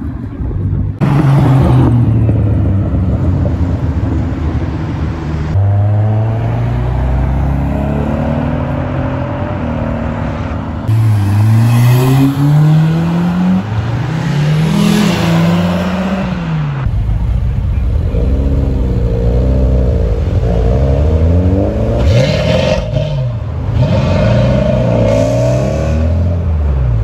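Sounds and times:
cars accelerating away: 10.8s - 16.9s, 17.8s - 27.0s.

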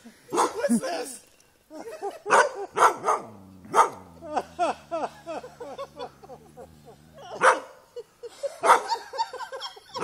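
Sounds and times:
dog barking: 0.3s - 0.6s, 2.3s - 4.0s, 7.4s - 7.8s, 8.6s - 9.0s.

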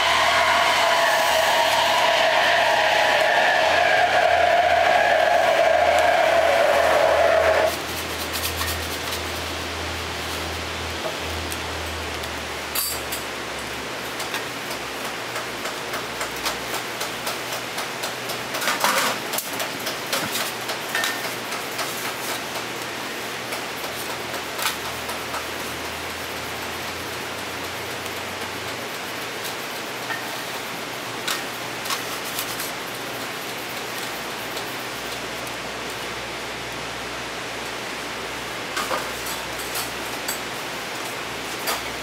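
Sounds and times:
steady hiss: 0.0s - 12.6s.

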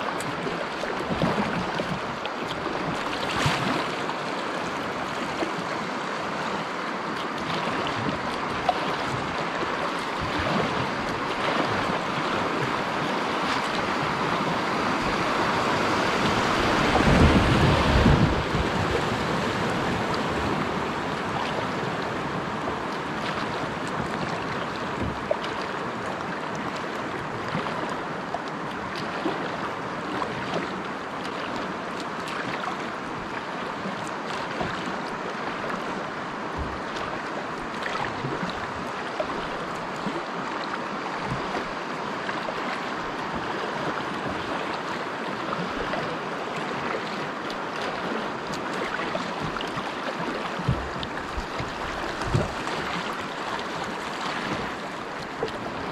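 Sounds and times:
splashes and knocks against hull: 0.0s - 55.9s
water rushing through rapids: 0.0s - 55.9s.

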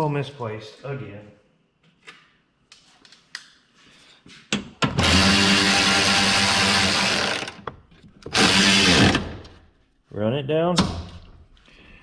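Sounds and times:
electric ratchet running: 5.0s - 7.6s, 8.3s - 9.3s.

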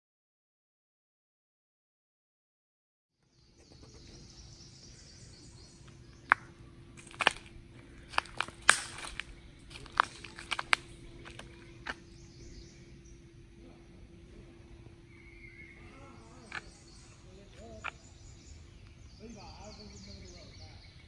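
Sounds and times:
steady low hum: 3.2s - 21.0s
footsteps crunching twigs and leaves: 5.6s - 12.9s, 16.4s - 19.1s.

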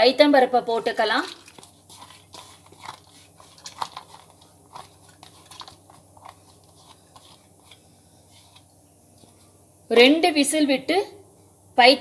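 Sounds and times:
small clicks and wet patters: 1.0s - 7.8s.

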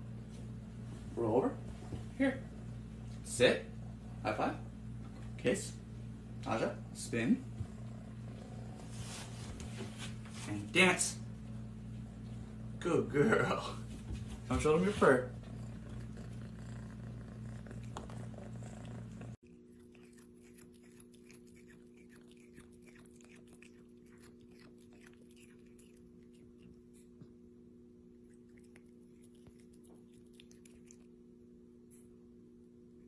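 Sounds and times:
room noise: 0.0s - 20.2s
steady low hum: 0.0s - 33.0s
cat chewing grass: 7.4s - 10.2s, 15.4s - 27.3s, 28.1s - 31.2s.

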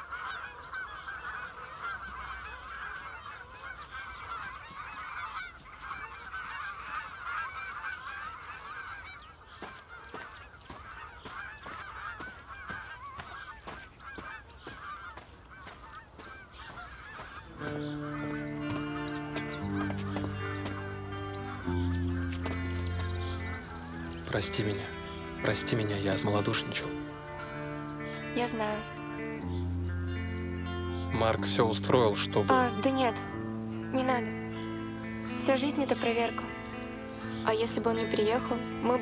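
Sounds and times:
geese honking and cackling: 0.0s - 39.0s
music: 17.4s - 39.0s.

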